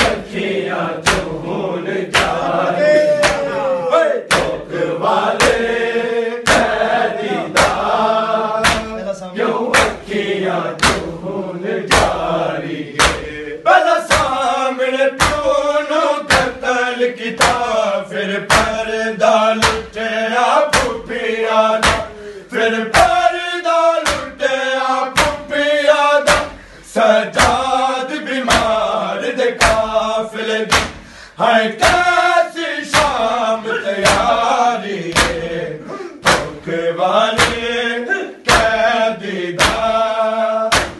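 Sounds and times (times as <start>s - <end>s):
men chanting in unison: 0.0s - 40.9s
hands striking chests: 1.0s - 1.4s, 2.1s - 2.5s, 3.2s - 3.6s, 4.3s - 4.6s, 6.4s - 8.0s, 8.6s - 9.0s, 10.8s - 11.1s, 21.8s - 22.2s, 35.1s - 35.5s, 36.2s - 36.6s.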